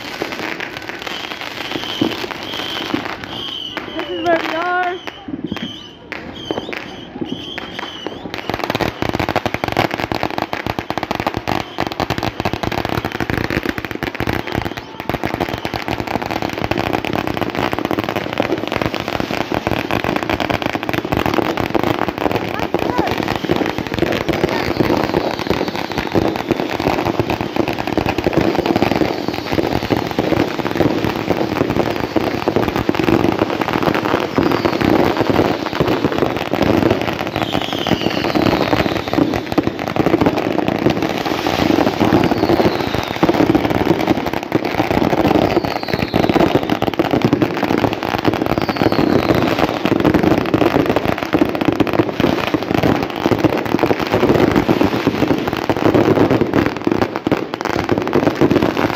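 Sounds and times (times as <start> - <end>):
firecrackers crackling and popping: 0.0 - 58.9
whistling fireworks: 0.0 - 58.9.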